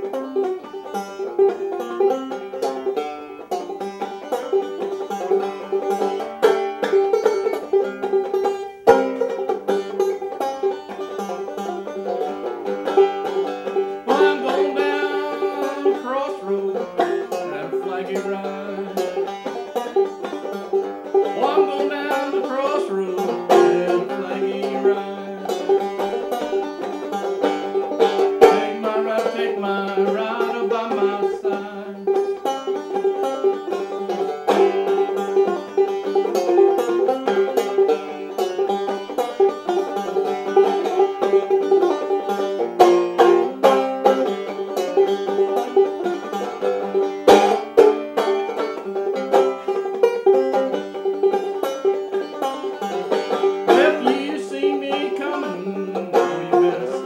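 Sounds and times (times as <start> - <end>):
banjo playing: 0.0 - 57.0.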